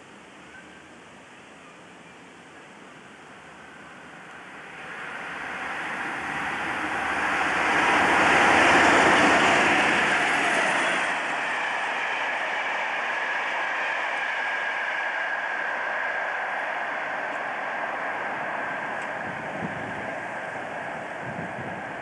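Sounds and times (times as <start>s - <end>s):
diesel locomotive passing: 2.6s - 22.0s
coach wheels rushing on rails: 3.2s - 22.0s.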